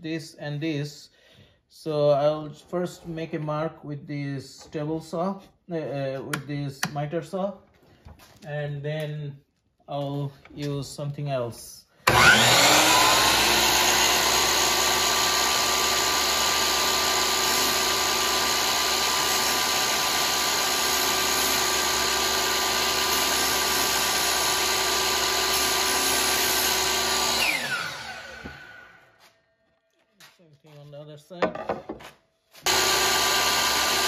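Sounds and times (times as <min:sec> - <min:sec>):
miter saw cutting plywood: 0:12.0 - 0:29.3, 0:32.6 - 0:34.0
saw motor winding down whine: 0:12.1 - 0:29.2, 0:32.6 - 0:34.0.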